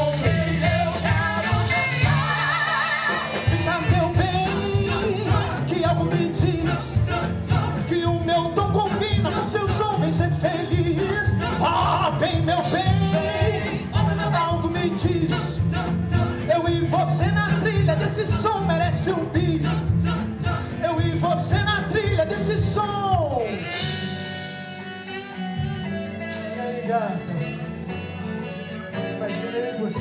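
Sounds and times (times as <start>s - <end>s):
voices singing: 0.0s - 23.8s
drums: 0.0s - 30.0s
upright bass: 0.0s - 30.0s.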